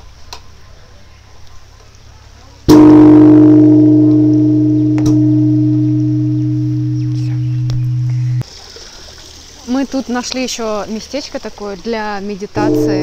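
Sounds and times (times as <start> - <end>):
large temple bell ringing: 2.7 - 8.4, 12.6 - 13.0.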